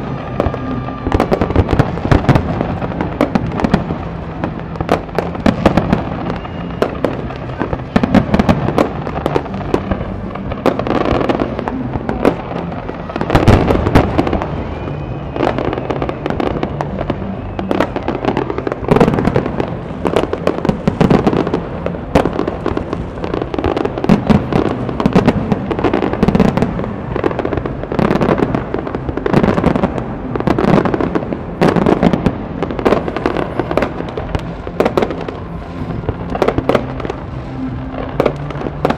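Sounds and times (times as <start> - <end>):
continuous rumble: 0.0 - 38.9
fireworks bangs and crackles: 0.0 - 38.9.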